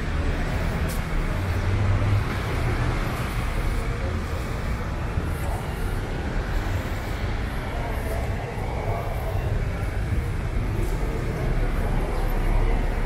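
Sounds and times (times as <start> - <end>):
road traffic with engine rumble: 0.0 - 13.0.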